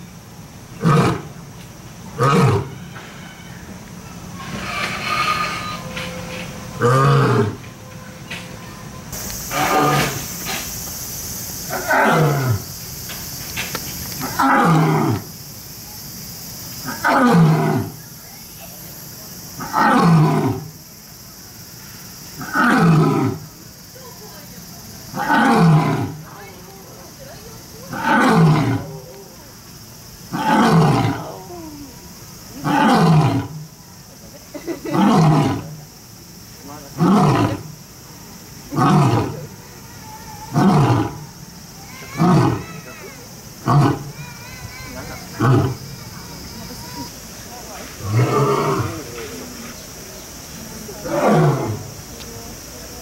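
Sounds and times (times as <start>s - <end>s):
lion roaring: 0.8s - 1.3s, 2.1s - 2.7s, 6.8s - 7.6s, 9.5s - 10.3s, 11.7s - 12.6s, 14.2s - 15.3s, 19.6s - 20.7s, 22.4s - 23.5s, 25.1s - 26.2s, 27.9s - 29.3s, 30.3s - 31.7s, 32.6s - 33.6s, 34.9s - 35.8s, 36.9s - 37.8s, 38.7s - 39.5s, 40.4s - 41.4s, 42.2s - 42.8s, 43.6s - 44.2s, 45.3s - 46.0s, 48.0s - 49.2s, 51.0s - 51.9s.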